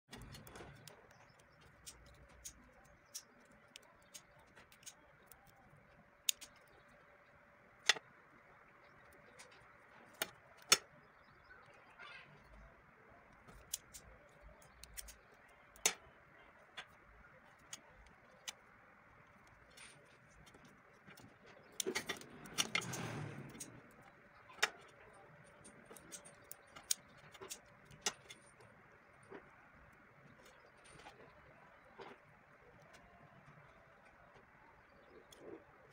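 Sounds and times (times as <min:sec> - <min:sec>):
objects clattering and rustling: 0:19.6 - 0:29.6.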